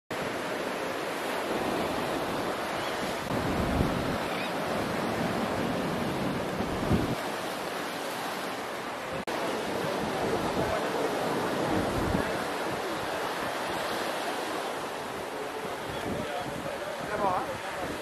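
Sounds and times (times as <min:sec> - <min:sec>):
surf washing over rocky shore: 0:00.1 - 0:18.0
wind rumble on microphone: 0:03.1 - 0:07.3, 0:09.8 - 0:13.2.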